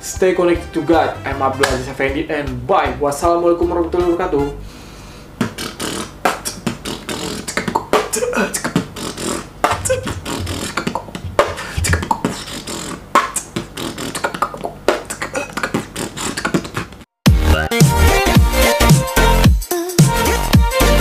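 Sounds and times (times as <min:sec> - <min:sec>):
person beatboxing: 0:05.4 - 0:17.0.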